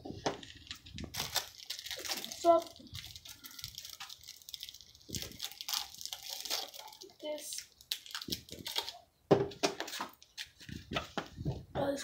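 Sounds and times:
crackers crackling: 0.1 - 9.0
plastic wrappers crinkling: 0.1 - 9.0.

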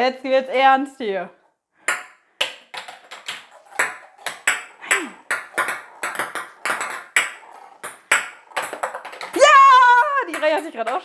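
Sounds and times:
plastic balls clicking on plastic: 2.4 - 11.0.

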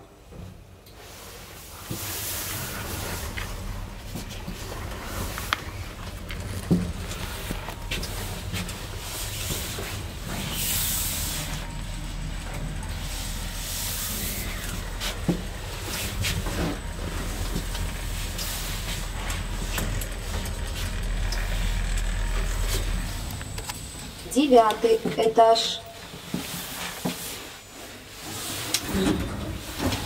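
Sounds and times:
elevator hum: 0.3 - 30.0.

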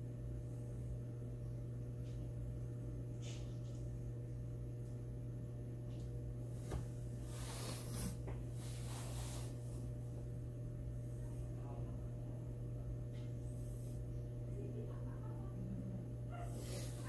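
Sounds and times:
steady low hum: 0.0 - 17.0
soft hissing rustles: 6.5 - 10.0.

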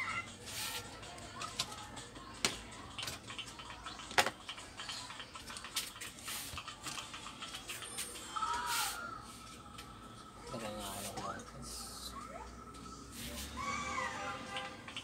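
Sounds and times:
computer parts clicking and rattling: 2.9 - 8.4.

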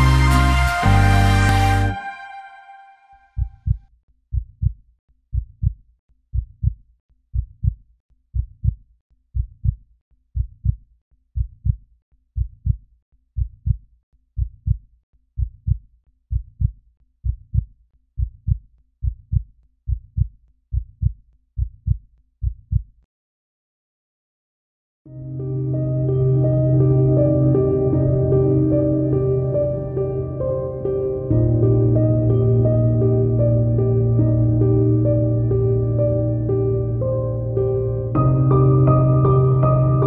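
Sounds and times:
heartbeat: 3.4 - 8.8, 9.4 - 9.8, 10.4 - 10.8, 11.4 - 11.8, 12.4 - 12.8, 13.4 - 13.8, 14.4 - 14.8, 15.4 - 23.0.

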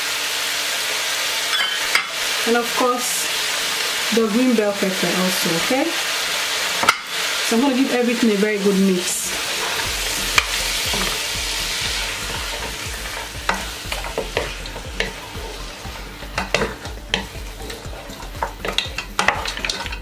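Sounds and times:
meat sizzling in a pot: 0.0 - 20.0
spatula knocking and scraping pot: 9.6 - 11.2, 12.2 - 20.0.

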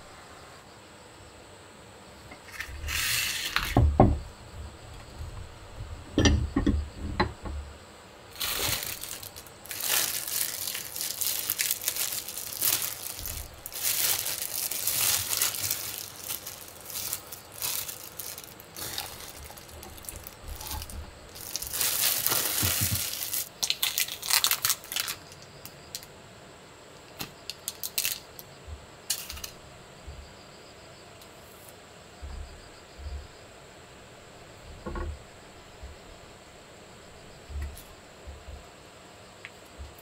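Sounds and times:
plastic packaging crinkling: 8.3 - 26.1, 27.2 - 28.4, 29.1 - 29.6.

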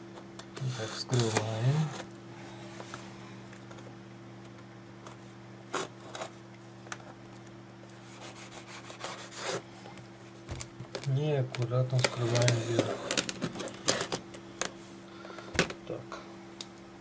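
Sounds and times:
low steady hum: 0.0 - 17.0
packaging scraping and rubbing: 8.0 - 9.6, 11.9 - 14.2.

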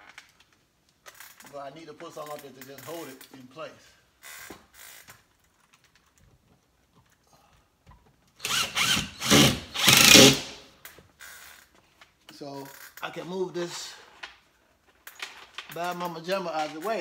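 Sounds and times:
cordless drill driving a screw: 8.4 - 10.6.

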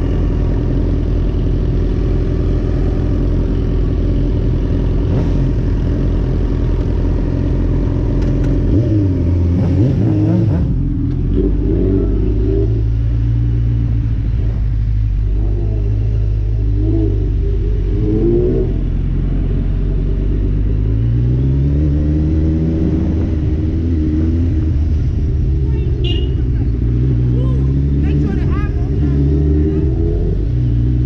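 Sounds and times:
motor vehicle engine running: 0.0 - 31.0.

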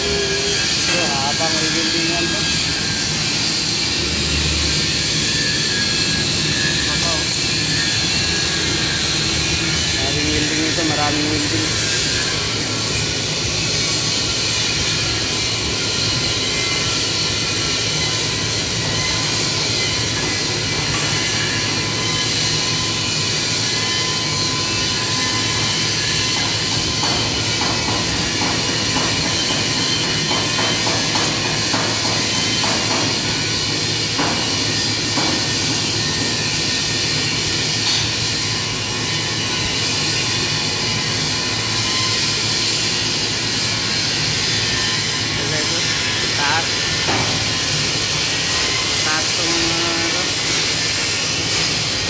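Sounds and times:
thin steady whine: 0.0 - 52.0
workshop machinery roaring: 0.0 - 52.0.

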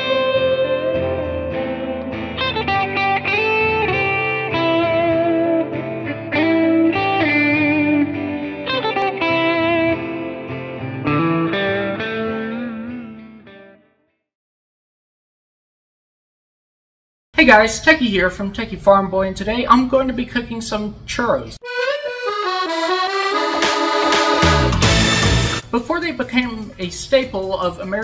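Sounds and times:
plucked guitar music: 0.0 - 14.1, 21.6 - 25.6.

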